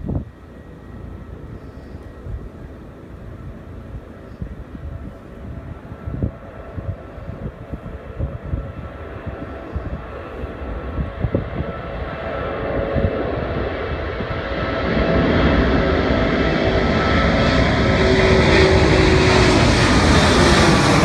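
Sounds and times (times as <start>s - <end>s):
jet airliner passing overhead: 0.0s - 21.0s
faint sliding engine tones: 0.3s - 7.4s.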